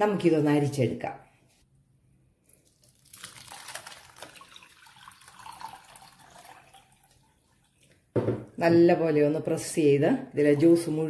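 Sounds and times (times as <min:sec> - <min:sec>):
liquid pouring and splashing: 0:02.5 - 0:08.1.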